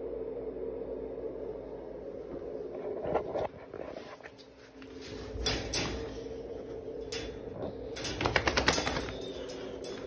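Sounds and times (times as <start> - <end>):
steady low hum: 0.0 - 10.0
wire dog crate rattling: 4.9 - 6.4, 7.0 - 10.0.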